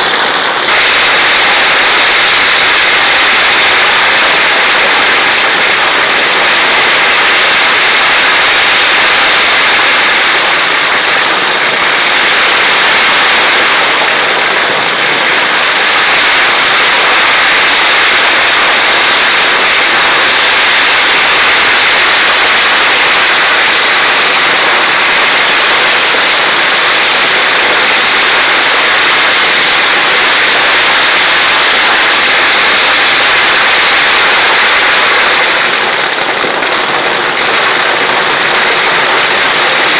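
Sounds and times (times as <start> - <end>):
firecrackers crackling: 0.0 - 39.9.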